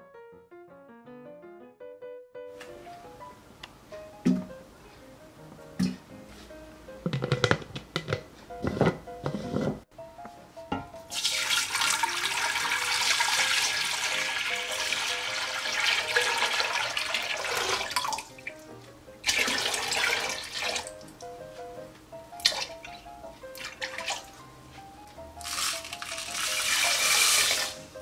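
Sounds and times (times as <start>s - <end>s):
soft background music: 2.5s - 28.0s
liquid pouring into a metal pot: 11.1s - 18.3s, 19.2s - 20.9s, 25.4s - 27.8s.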